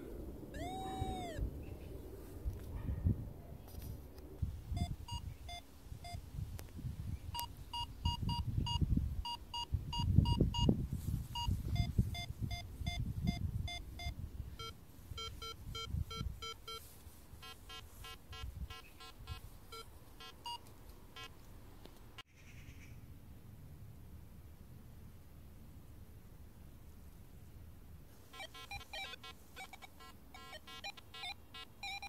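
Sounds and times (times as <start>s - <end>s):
metal detector beeps: 0.6s - 1.4s, 4.8s - 6.2s, 7.4s - 10.7s, 11.4s - 20.6s, 28.4s - 32.0s.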